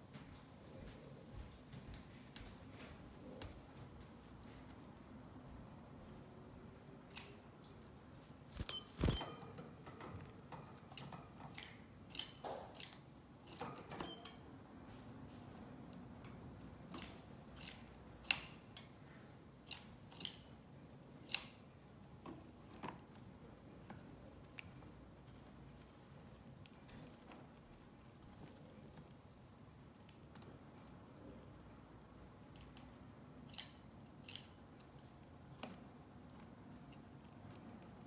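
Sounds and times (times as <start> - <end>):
canary clicking and tapping in cage: 8.6 - 14.4.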